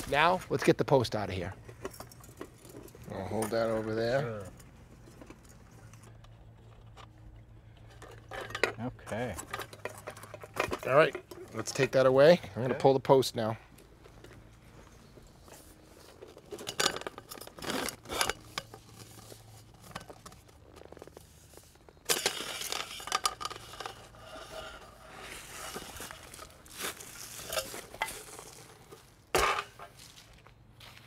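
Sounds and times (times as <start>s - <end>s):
metal clanks and clicks: 4.5s - 12.0s
scraping rustle: 14.7s - 30.4s.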